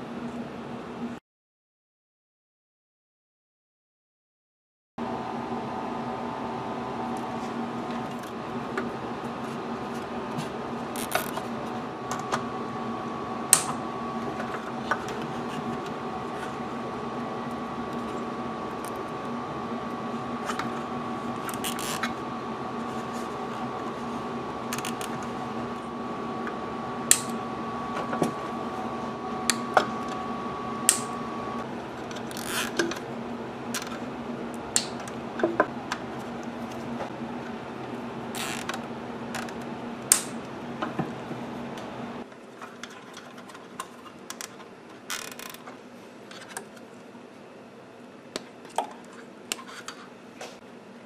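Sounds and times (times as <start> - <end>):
steady low hum: 5.0 - 51.0
diagonal cutters snipping: 13.5 - 13.8, 27.0 - 27.4, 30.8 - 31.2
cable ties ratcheting: 24.7 - 25.2, 44.3 - 45.6.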